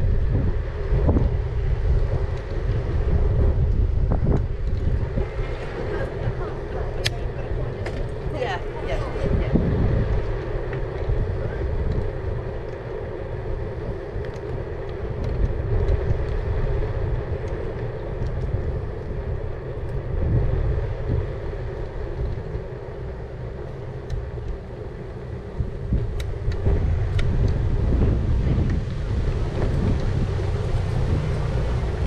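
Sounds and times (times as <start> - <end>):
steady mid-pitched hum: 0.0 - 32.0
tyre noise on road: 0.0 - 32.0
wind rumble on microphone: 0.0 - 32.0
light ticks: 14.2 - 16.4, 24.0 - 24.6.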